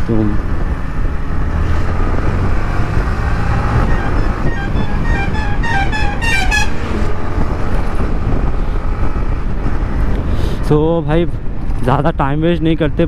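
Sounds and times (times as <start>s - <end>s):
wind on microphone: 0.3s - 10.7s
musical vehicle horn: 3.8s - 6.8s.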